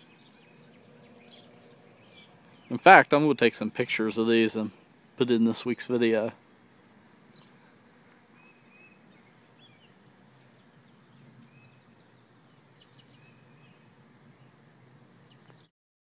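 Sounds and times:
distant bird chirps: 0.0 - 2.9, 6.4 - 15.7.

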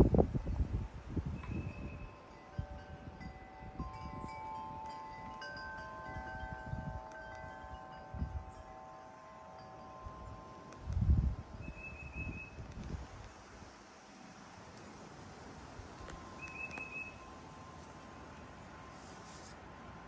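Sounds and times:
wind chimes ringing: 1.4 - 11.6, 15.9 - 19.3.

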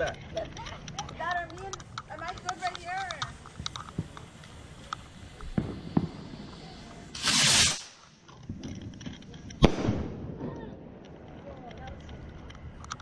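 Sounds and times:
firework hissing whoosh: 2.4 - 8.2
firework bang: 5.4 - 8.6, 9.6 - 10.9.

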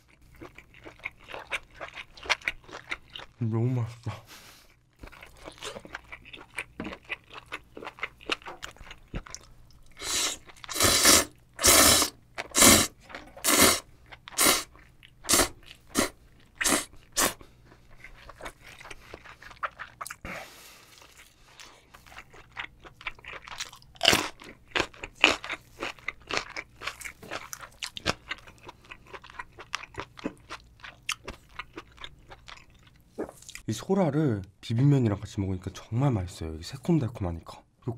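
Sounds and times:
wet chewing: 0.1 - 3.4, 4.9 - 33.7
loud noodle slurps: 10.0 - 14.7, 15.3 - 17.4.

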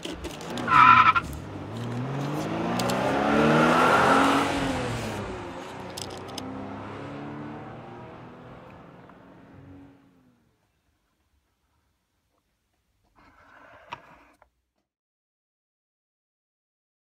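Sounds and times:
car engine passing by: 0.5 - 10.4
high-pitched squeal: 0.6 - 1.3.

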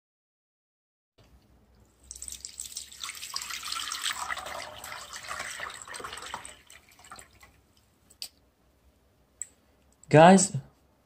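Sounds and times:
liquid splashing and trickling: 1.9 - 7.7.

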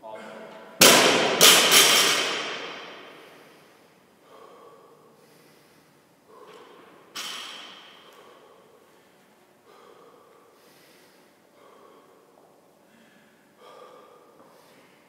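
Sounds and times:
barbell dropped on rubber floor: 0.8 - 3.0, 7.1 - 8.0
man breathing heavily: 2.5 - 15.0.

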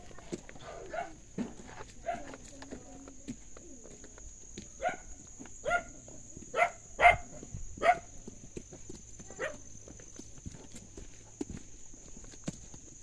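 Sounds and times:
dog barking: 0.6 - 1.2, 2.0 - 2.4, 4.8 - 8.1, 9.3 - 9.6.

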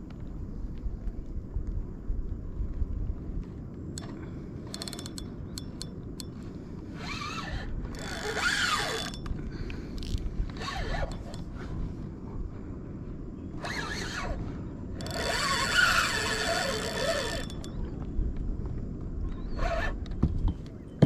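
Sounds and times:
wind rumble on microphone: 0.0 - 21.0
fishing reel clicking and rasping: 4.0 - 9.3, 9.9 - 11.5, 13.6 - 17.8.

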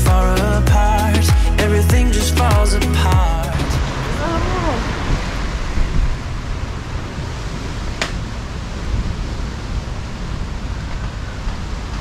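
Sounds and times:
wind rushing over microphone: 3.5 - 12.0.

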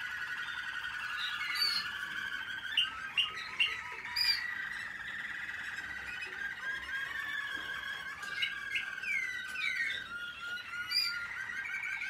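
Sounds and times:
canaries singing rolling trills: 0.0 - 12.0.

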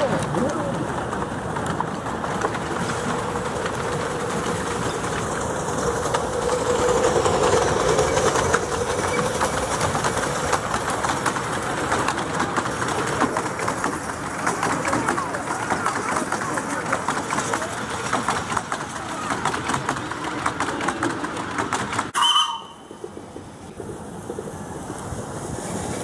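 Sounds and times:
train wheels clicking over rail joints: 0.0 - 26.0
wheel squeal: 6.7 - 9.8.

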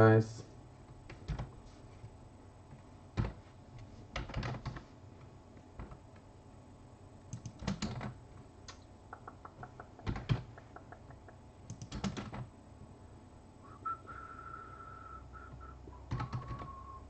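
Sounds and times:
computer keyboard typing: 7.3 - 8.2, 9.2 - 12.5, 16.1 - 16.7.

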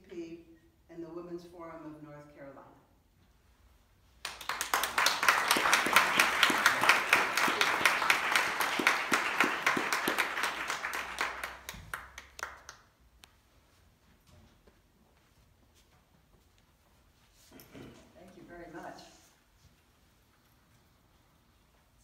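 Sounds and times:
audience applauding: 4.2 - 12.8.

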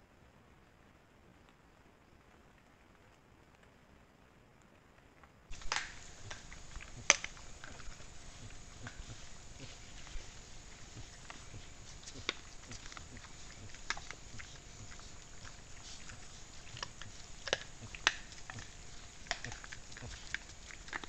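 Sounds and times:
faint steady hiss: 0.0 - 21.0
animals chewing and rooting: 5.2 - 21.0.

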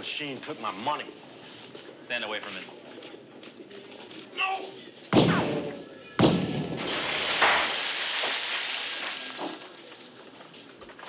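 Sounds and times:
gunshots: 5.1 - 9.0
machine crashing apart: 6.2 - 9.9.

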